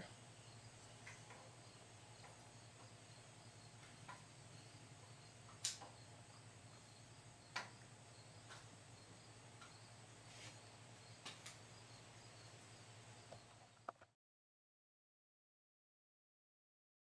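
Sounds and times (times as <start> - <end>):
sharp clicks: 5.5 - 5.9.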